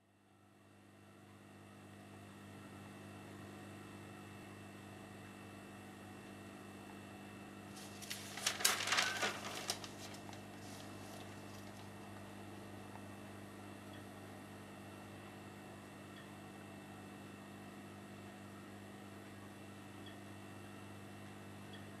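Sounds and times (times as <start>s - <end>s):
indoor room hum: 0.0s - 22.0s
sharp clicks and rustles: 7.8s - 12.0s.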